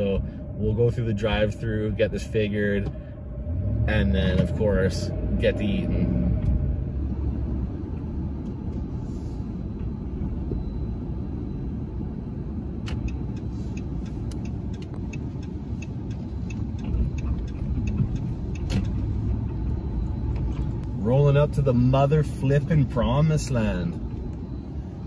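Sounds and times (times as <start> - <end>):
engine and road rumble: 0.0 - 25.0
light regular ticking: 12.7 - 22.7.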